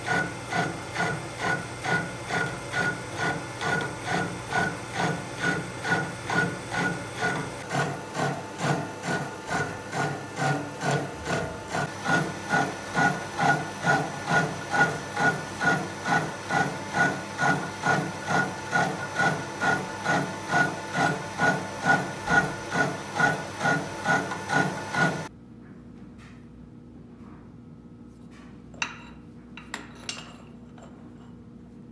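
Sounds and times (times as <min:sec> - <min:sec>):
milling cutter chattering on metal: 0:00.0 - 0:25.3
machine steady hum: 0:00.0 - 0:31.9.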